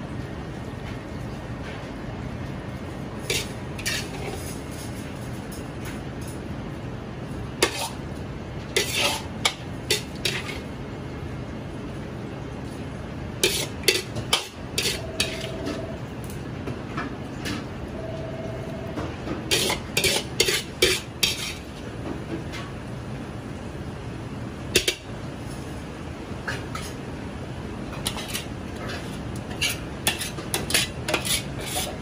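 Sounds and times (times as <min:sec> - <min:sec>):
metal ladle scraping wok: 0:03.2 - 0:04.6, 0:08.8 - 0:10.7, 0:13.4 - 0:15.8, 0:19.5 - 0:21.7, 0:28.0 - 0:32.0.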